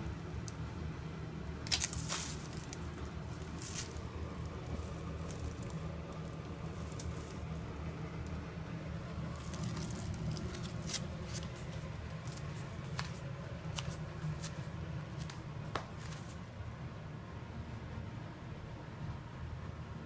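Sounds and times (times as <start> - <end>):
steady low hum: 0.0 - 20.0
ferret rustling: 1.4 - 16.5
claws clicking on wooden floor: 1.7 - 2.8, 9.3 - 16.4.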